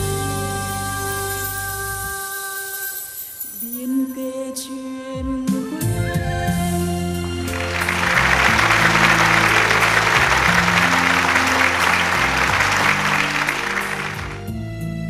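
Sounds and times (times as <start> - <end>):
music with long low notes: 5.9 - 15.0
audience applauding: 7.2 - 14.5.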